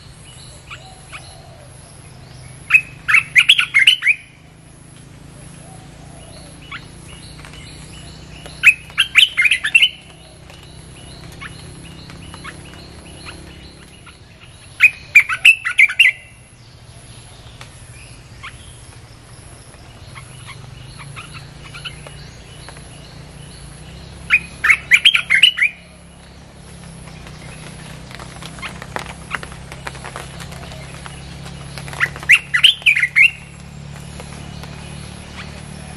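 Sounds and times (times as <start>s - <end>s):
bird bubbly chattering song: 0.0s - 35.9s
faint bird chips: 26.9s - 35.9s.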